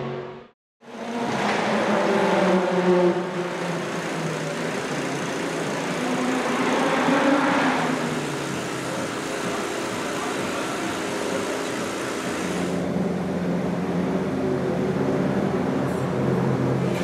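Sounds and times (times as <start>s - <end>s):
race car engine idling: 3.2s - 6.6s.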